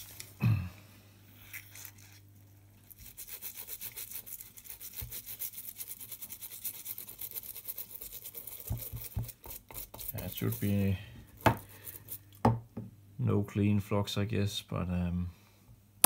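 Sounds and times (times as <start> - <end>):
scratchy scrubbing on circuit board: 3.0 - 10.9.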